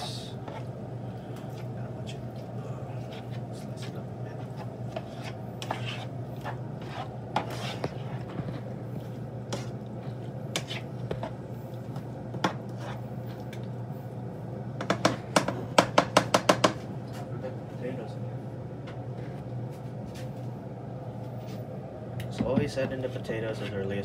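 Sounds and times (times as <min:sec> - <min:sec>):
spatula scraping frying pan: 0:03.0 - 0:08.3, 0:09.5 - 0:11.4.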